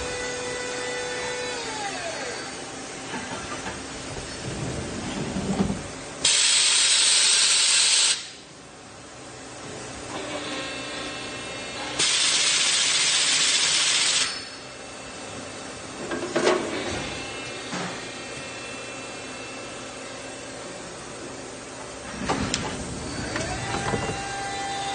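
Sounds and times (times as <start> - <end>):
machine faint whine: 22.0 - 24.9.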